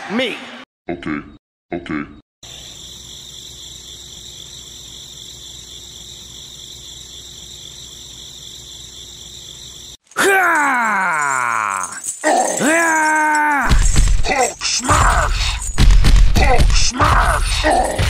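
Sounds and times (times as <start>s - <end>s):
crickets chirping: 2.4s - 15.8s.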